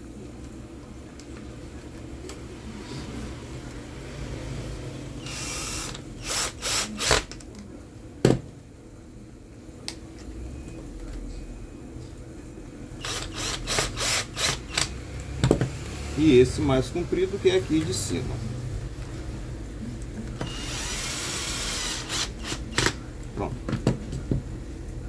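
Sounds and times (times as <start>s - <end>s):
cordless drill motor: 5.2s - 7.3s, 13.0s - 14.9s, 20.4s - 23.0s.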